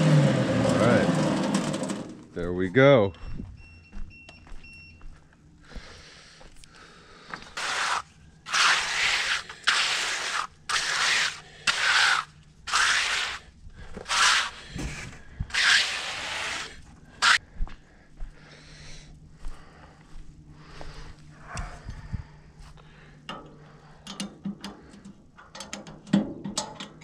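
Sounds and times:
hand float scraping wet concrete: 7.5s - 17.4s.

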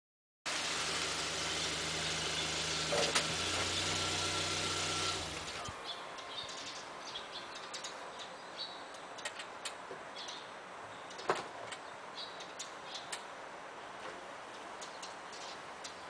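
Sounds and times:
car engine idling: 0.5s - 5.8s.

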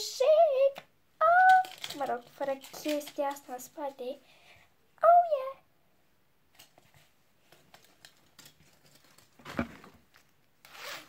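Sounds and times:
jacket rustling and clicking: 6.5s - 11.0s
zipper being pulled open: 10.6s - 11.0s.

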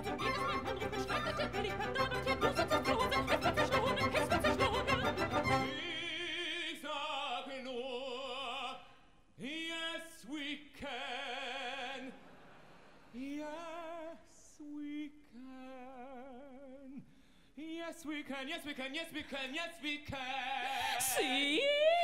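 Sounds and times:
orchestral music: 0.0s - 6.1s
operatic voice singing: 0.0s - 8.8s, 17.6s - 22.0s.

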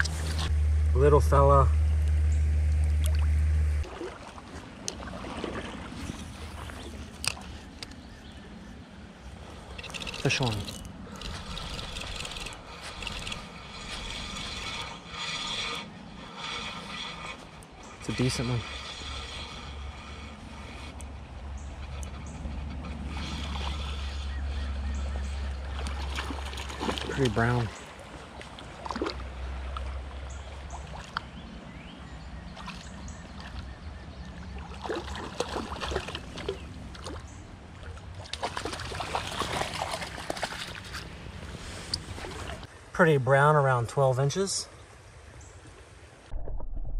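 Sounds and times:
wading sloshing: 1.9s - 42.8s
fish splashing in water: 2.8s - 7.2s, 22.8s - 31.4s, 34.4s - 41.2s
running water: 9.4s - 31.3s
fishing reel whirring: 9.5s - 26.6s.

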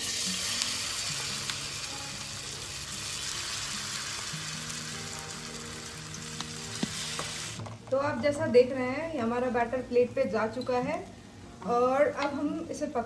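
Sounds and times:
batter sizzling in a frying pan: 0.0s - 7.6s.

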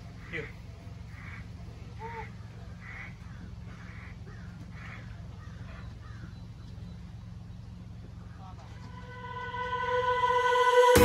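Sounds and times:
crows cawing: 1.1s - 6.4s
steady low rumble: 6.4s - 11.0s.

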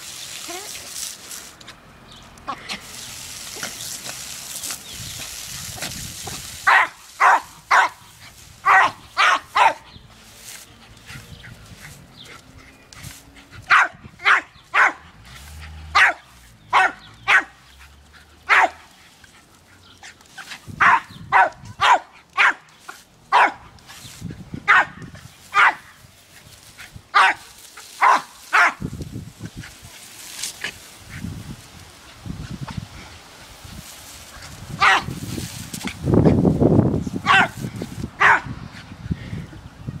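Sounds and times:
dog barking: 6.7s - 8.0s, 8.6s - 9.9s, 13.7s - 15.0s, 16.0s - 17.6s, 18.5s - 18.8s, 20.8s - 22.6s, 23.3s - 23.6s, 24.7s - 25.0s, 25.6s - 25.9s, 27.2s - 27.4s, 28.0s - 28.8s, 34.8s - 35.1s, 37.2s - 37.6s, 38.2s - 38.5s.

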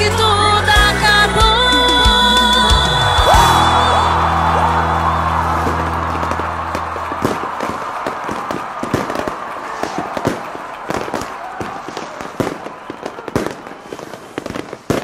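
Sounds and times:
fireworks bangs and pops: 5.2s - 15.0s.

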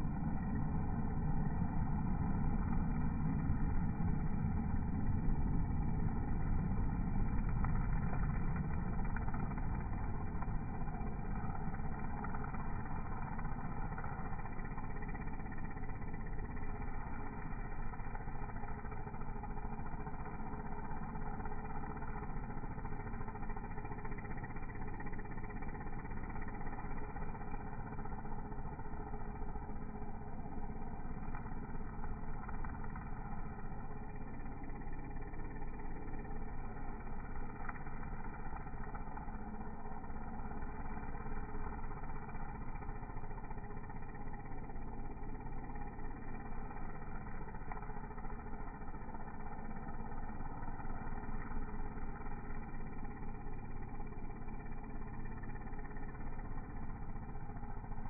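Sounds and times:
string trimmer engine cutting grass: 38.2s - 58.0s.

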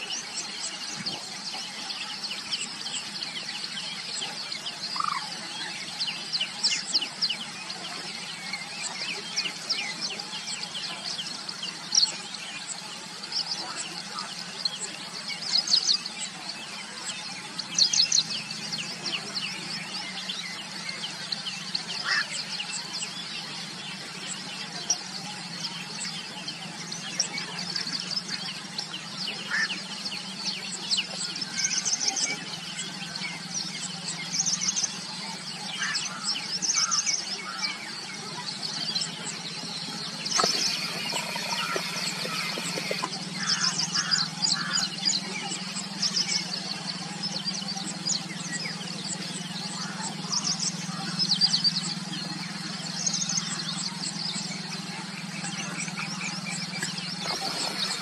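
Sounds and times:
small birds chirping: 0.0s - 58.0s
steady low hum: 0.1s - 58.0s
lower bird calls: 17.7s - 58.0s.

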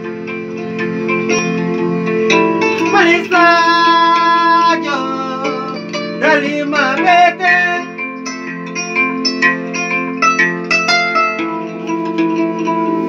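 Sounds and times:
electronic keyboard notes: 0.0s - 13.0s
kora plucked: 0.0s - 13.0s
person singing: 2.7s - 8.1s.

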